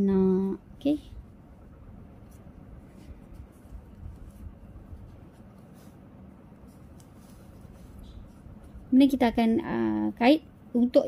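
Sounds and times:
light rustling: 1.1 - 9.3.

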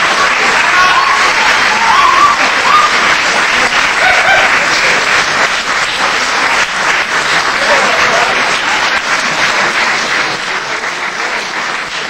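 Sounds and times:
shouted cheers: 0.0 - 4.6
audience applauding: 0.0 - 12.0.

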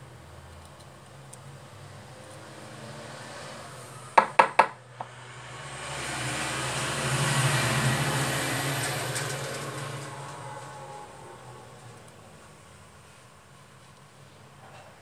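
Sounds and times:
knocks on wooden workbench: 4.2 - 5.1.

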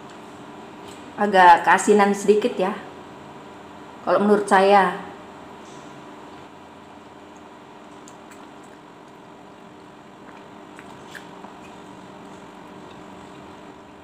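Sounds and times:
steady room hum: 0.0 - 14.0
wet mouth chewing sounds: 7.3 - 13.6.

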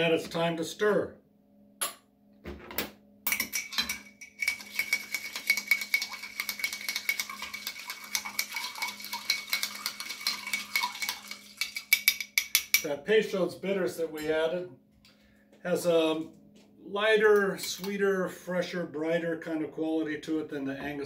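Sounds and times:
spoon stirring ice in glass: 3.3 - 12.9.

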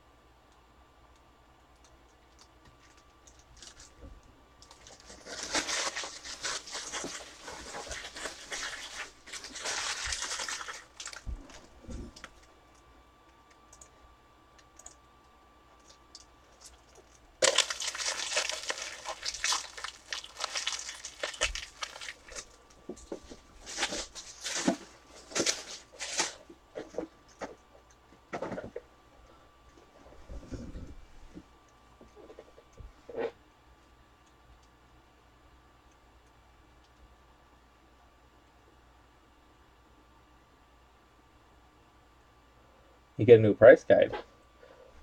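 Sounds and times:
packaging crinkling and tearing: 2.3 - 4.0, 4.6 - 12.5, 15.8 - 27.4
sharp crack: 17.4 - 22.4.

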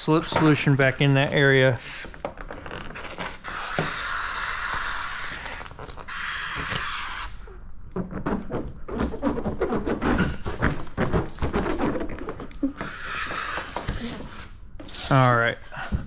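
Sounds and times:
squeaks of hands on wet film: 0.0 - 15.5.

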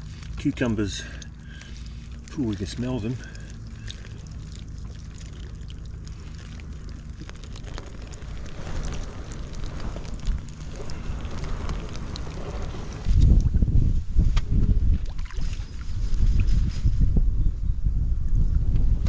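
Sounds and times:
faint water trickling and dripping: 0.0 - 13.8
wind rumbling on microphone: 0.0 - 19.0.

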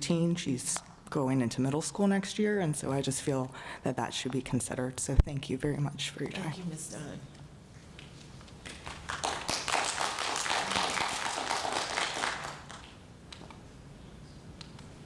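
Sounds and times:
audience applause: 8.6 - 13.0.

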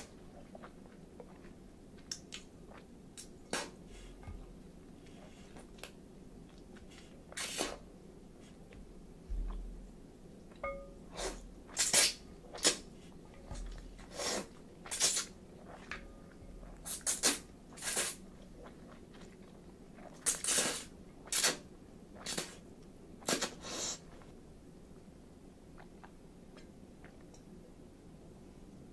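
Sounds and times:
chewing: 0.1 - 2.9, 11.3 - 21.4
noodles slurped loudly: 14.0 - 15.9, 16.8 - 19.2, 20.0 - 21.6.

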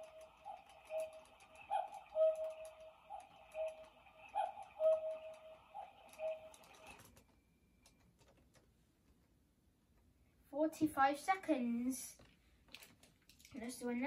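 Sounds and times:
spinning top ringing whir: 0.0 - 7.1.

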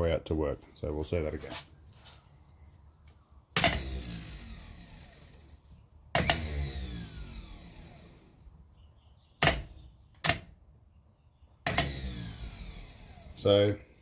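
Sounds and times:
starter motor clacking: 3.6 - 5.6, 6.2 - 8.4, 11.7 - 13.4
starter motor whirring down: 3.6 - 5.6, 6.2 - 8.5, 11.7 - 13.6.

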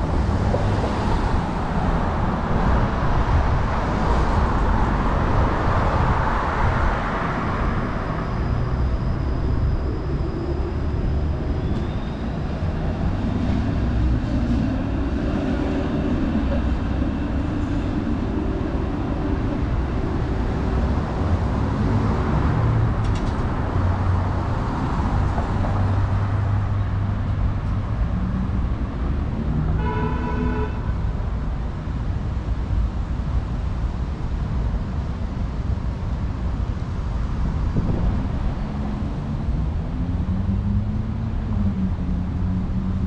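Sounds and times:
city street traffic rumble: 0.0 - 43.0
vehicle horn: 29.7 - 31.0.

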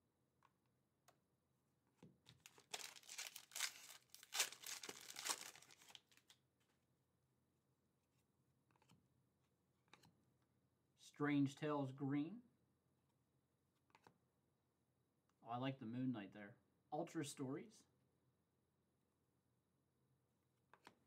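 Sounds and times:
foil wrapper tearing and crinkling: 2.4 - 6.3.

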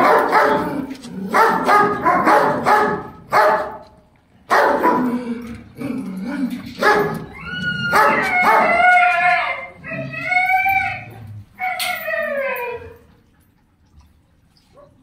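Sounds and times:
dogs barking: 0.0 - 3.9, 4.5 - 5.2, 6.8 - 9.1
dog whining: 7.1 - 13.2.

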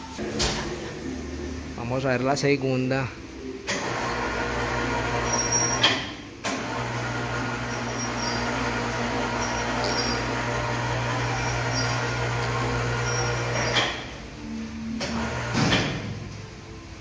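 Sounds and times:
electric winch humming: 3.6 - 16.2.

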